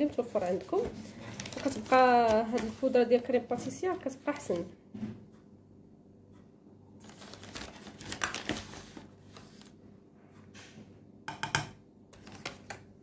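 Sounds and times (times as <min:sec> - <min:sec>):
paper packet rustling: 0:00.0 - 0:03.0, 0:07.0 - 0:09.7, 0:12.2 - 0:12.8.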